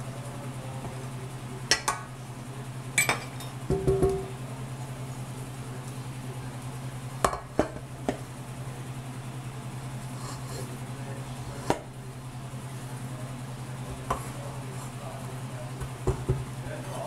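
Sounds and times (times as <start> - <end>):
steady low hum: 0.0 - 17.0
utensil clinking on metal bowl: 3.0 - 4.3.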